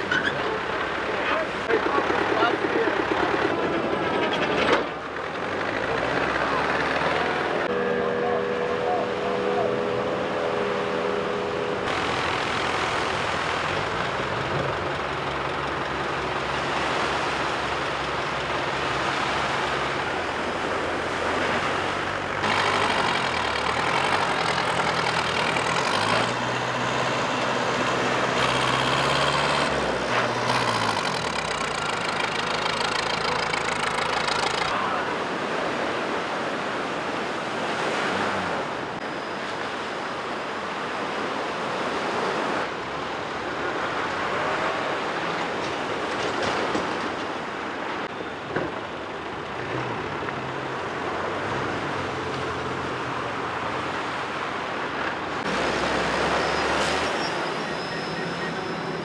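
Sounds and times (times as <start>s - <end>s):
outboard motors running: 0.0s - 39.0s
surf and spray rushing: 5.8s - 48.1s, 48.7s - 59.0s.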